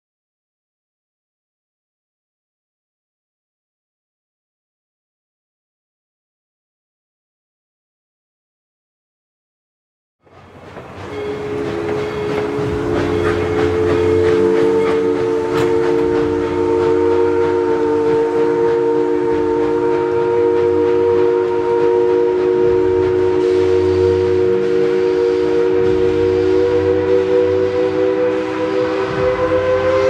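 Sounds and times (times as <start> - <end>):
low rumble of train: 10.2 - 30.0
steam locomotive chime whistle: 10.2 - 30.0.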